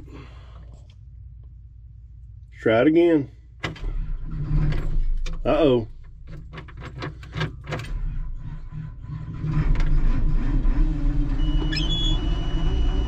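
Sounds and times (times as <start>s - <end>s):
engine starter cranking: 3.6s - 13.0s.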